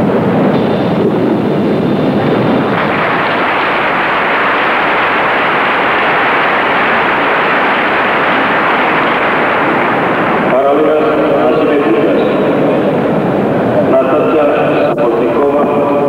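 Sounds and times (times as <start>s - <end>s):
crowd noise in arena: 1.6s - 16.0s.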